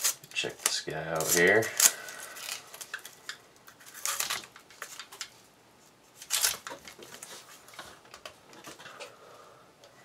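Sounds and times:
foil and paper crinkling: 0:00.0 - 0:05.3, 0:06.2 - 0:07.8.

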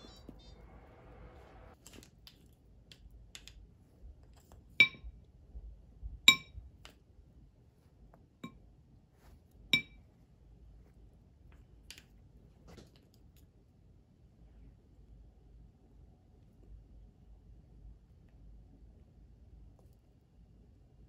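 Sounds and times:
spoon clinking against dish: 0:09.8 - 0:10.0.

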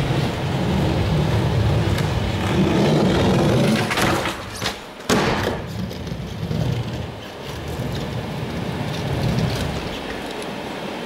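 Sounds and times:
skateboard scraping metal edge: 0:00.0 - 0:10.2
skateboard wheels rolling: 0:00.0 - 0:11.0
skateboard landing clack: 0:03.6 - 0:06.0.

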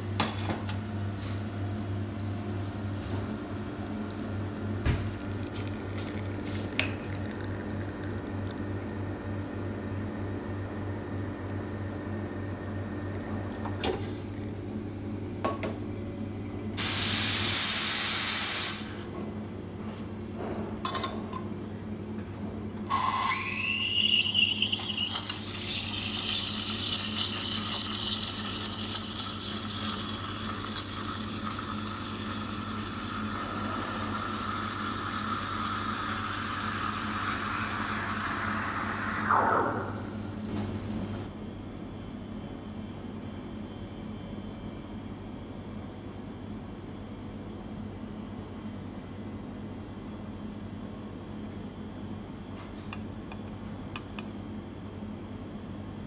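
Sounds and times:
espresso machine pump humming: 0:03.4 - 0:10.8, 0:22.9 - 0:40.1
milk steaming with whistling: 0:22.9 - 0:40.4.

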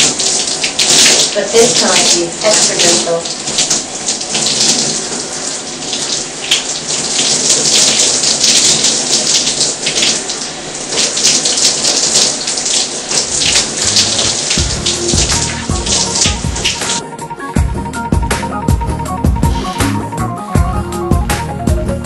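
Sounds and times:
shower spraying water on hair: 0:00.0 - 0:17.0, 0:19.4 - 0:20.0.

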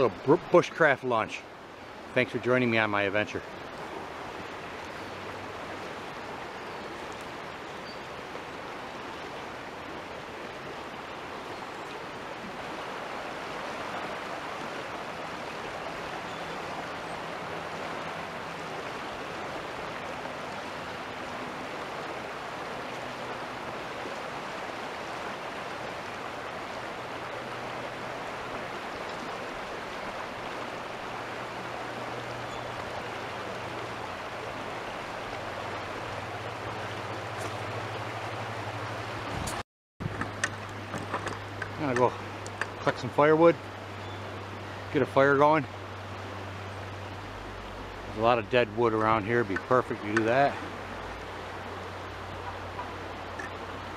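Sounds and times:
creek rushing over riffle: 0:12.0 - 0:53.9.

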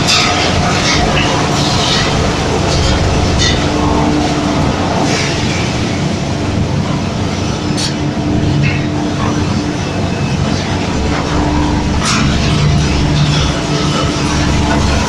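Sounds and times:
machinery hum: 0:00.0 - 0:15.0.

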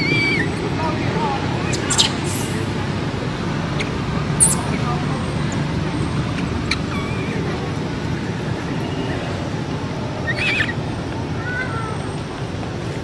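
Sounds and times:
baby monkey squealing: 0:01.7 - 0:02.6, 0:04.4 - 0:04.7, 0:06.6 - 0:07.4, 0:10.2 - 0:10.7.

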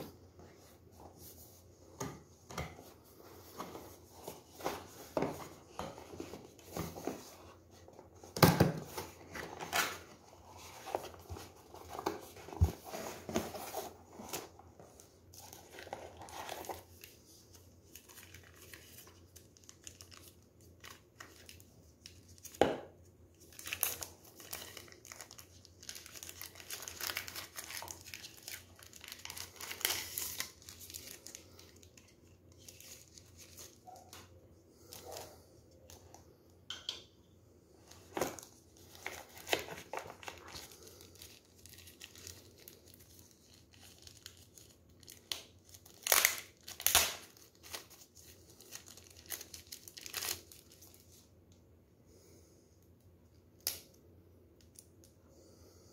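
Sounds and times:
plastic sleeve crinkling: 0:23.4 - 0:34.1, 0:38.0 - 0:51.2.

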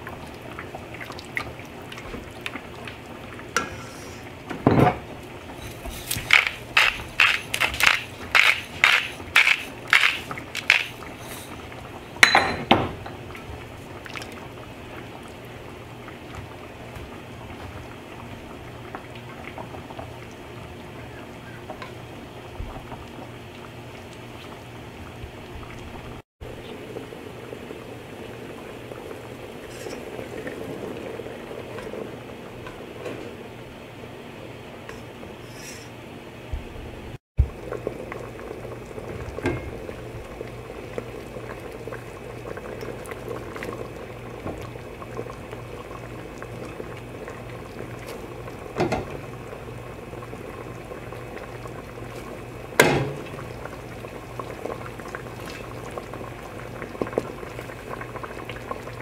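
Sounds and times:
sauce simmering and bubbling: 0:00.0 - 0:35.8, 0:37.4 - 0:59.0.

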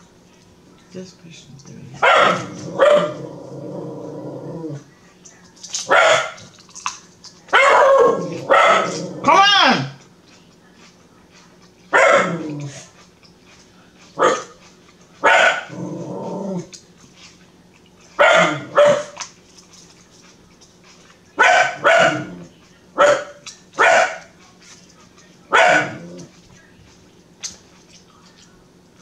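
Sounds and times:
dog barking: 0:02.0 - 0:03.2, 0:05.9 - 0:06.5, 0:07.5 - 0:09.5, 0:11.9 - 0:12.4, 0:14.2 - 0:14.6, 0:15.2 - 0:15.7, 0:18.2 - 0:19.2, 0:21.4 - 0:24.3, 0:25.5 - 0:26.1.

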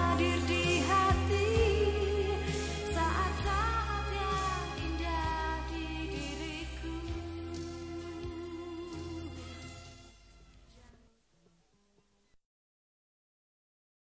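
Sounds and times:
woman singing pop ballad: 0:00.0 - 0:09.8
band accompaniment: 0:00.0 - 0:10.4.

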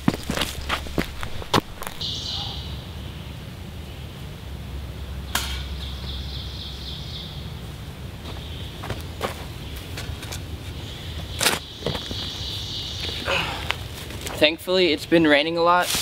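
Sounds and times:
low steady rumble: 0:00.0 - 0:11.4
rapid bird trill: 0:02.0 - 0:03.3
bird call: 0:02.0 - 0:03.4.

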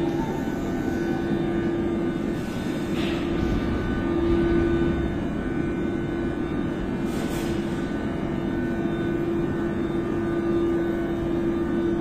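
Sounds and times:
train wheels rumbling on rail: 0:02.6 - 0:07.8
train motor hum: 0:02.9 - 0:07.0.

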